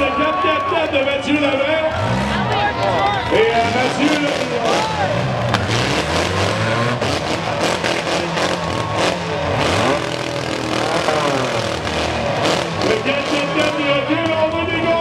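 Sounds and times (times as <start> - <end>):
car engines revving hard: 0.0 - 15.0
cars ramming each other: 0.8 - 15.0.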